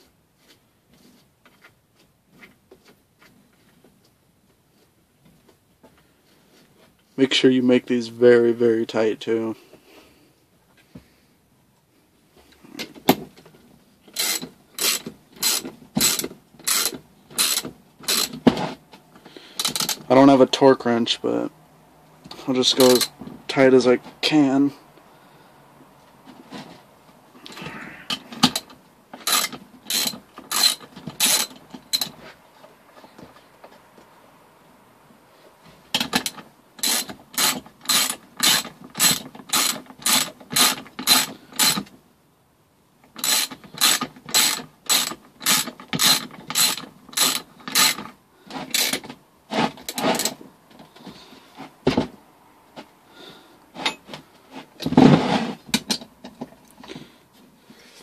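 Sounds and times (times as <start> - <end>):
ratchet wrench clicking: 14.1 - 18.3, 28.6 - 32.1, 36.2 - 41.9, 43.2 - 48.0.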